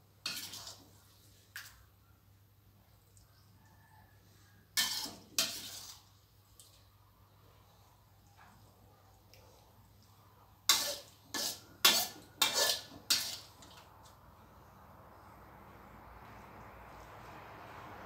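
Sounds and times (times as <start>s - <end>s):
metal spatula scraping steel wok: 0.2s - 0.9s, 4.8s - 6.2s, 10.7s - 13.8s.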